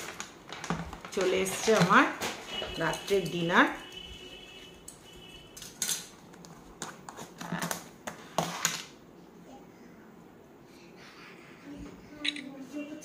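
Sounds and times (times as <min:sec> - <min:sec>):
plastic containers clattering: 0:00.0 - 0:04.0.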